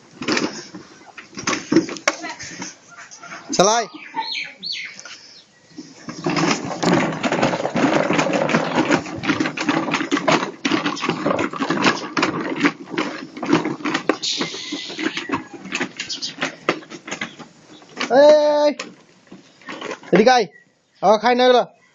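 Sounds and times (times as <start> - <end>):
plastic wheels rattling on concrete: 0.0 - 21.6.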